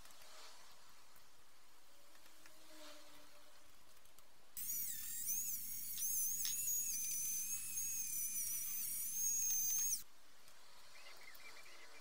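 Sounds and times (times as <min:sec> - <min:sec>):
rotary tool wire brush whine: 0:04.6 - 0:10.0.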